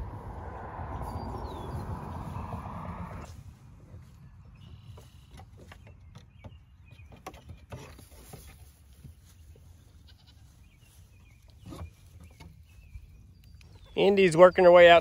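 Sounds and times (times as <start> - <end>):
low steady rumble: 0.0 - 4.9.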